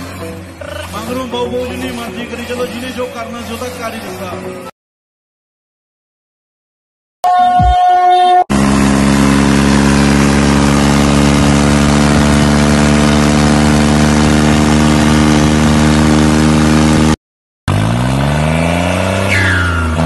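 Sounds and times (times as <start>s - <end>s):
tractor engine revving up: 0.0s - 4.6s, 8.5s - 20.0s
tractor diesel engine running: 0.0s - 4.7s, 8.5s - 17.2s.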